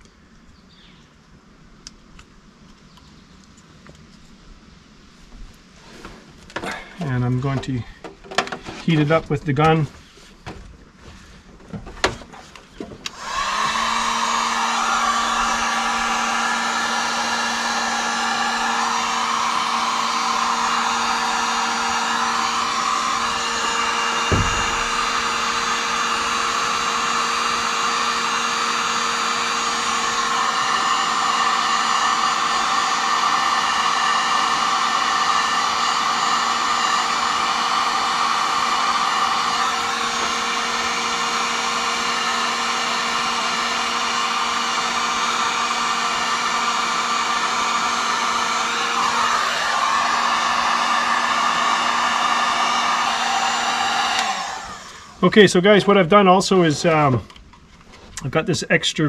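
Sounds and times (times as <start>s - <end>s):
heat gun blowing air: 12.0s - 55.4s
short knock: 24.3s - 25.1s.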